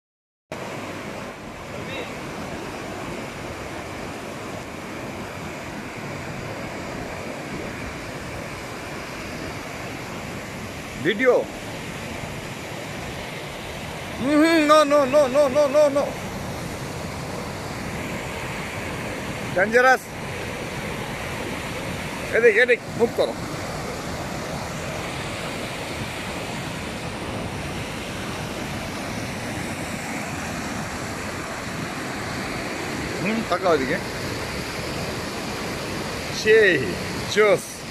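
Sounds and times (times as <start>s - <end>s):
river rushing over rapids: 0.6s - 37.9s.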